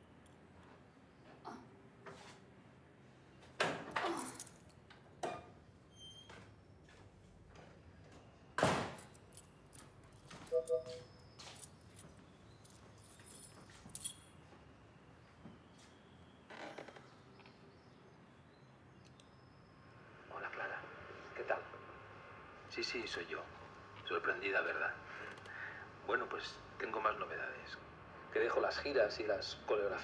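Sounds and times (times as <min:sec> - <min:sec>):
keys rattling in door lock: 0:04.0 - 0:04.8, 0:08.9 - 0:14.4
door thump: 0:08.6 - 0:09.0
short beep: 0:10.5 - 0:11.1.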